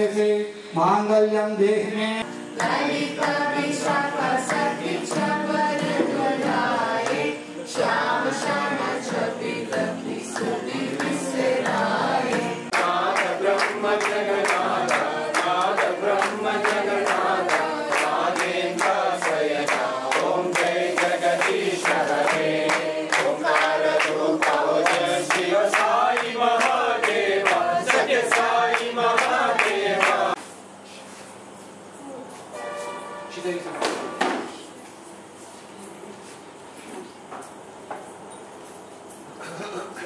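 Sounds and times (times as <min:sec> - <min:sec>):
group chanting in unison: 0:02.6 - 0:30.4.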